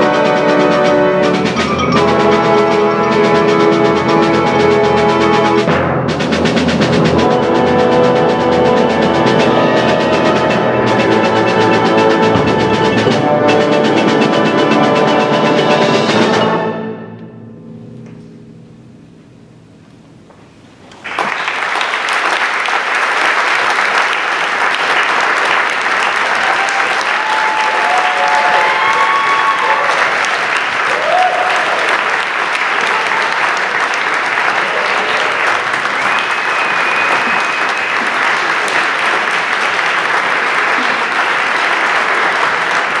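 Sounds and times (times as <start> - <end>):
audience applauding: 21.0 - 43.0
audience cheers: 25.9 - 39.8.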